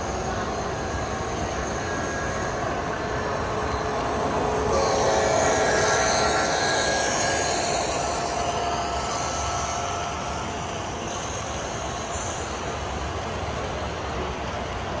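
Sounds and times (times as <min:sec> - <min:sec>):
model locomotive diesel engine sound: 0:00.0 - 0:15.0.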